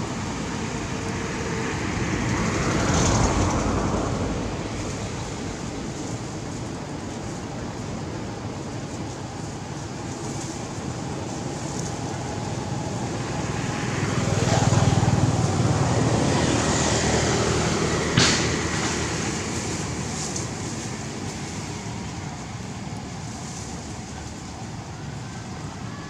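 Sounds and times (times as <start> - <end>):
vehicle passing by: 0.0 - 7.4, 11.5 - 26.0
sharp knock: 18.2 - 18.6.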